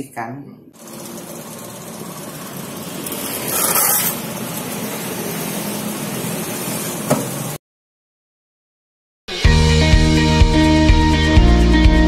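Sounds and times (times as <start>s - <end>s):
road traffic: 0.8s - 7.6s.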